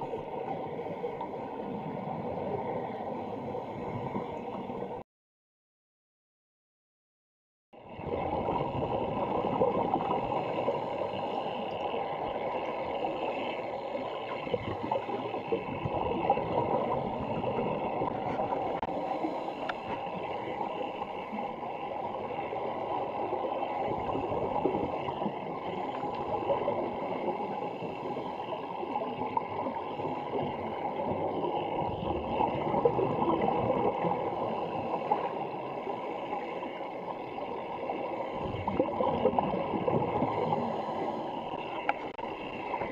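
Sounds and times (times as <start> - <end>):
underwater regulator bubbles gurgling: 7.8 - 42.9.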